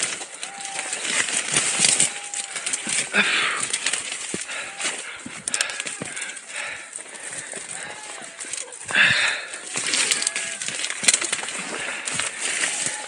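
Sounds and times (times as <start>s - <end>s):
scrub rustling and snapping: 0.0s - 13.0s
hounds baying in distance: 1.8s - 10.8s.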